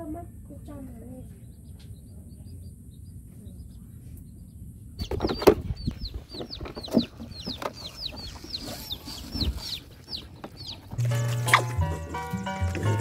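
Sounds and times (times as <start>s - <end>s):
chick peeping: 0.0s - 13.0s
puppies eating from plastic bucket: 7.7s - 13.0s
music: 11.0s - 13.0s.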